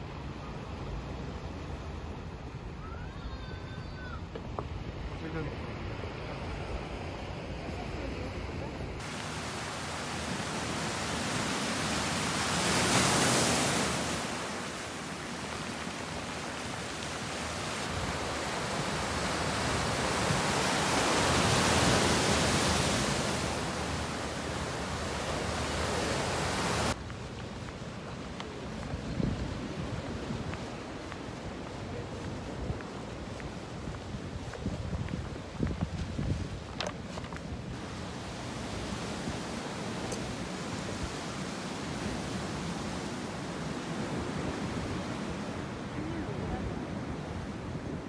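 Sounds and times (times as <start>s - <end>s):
sea waves washing over rocks: 9.0s - 34.4s.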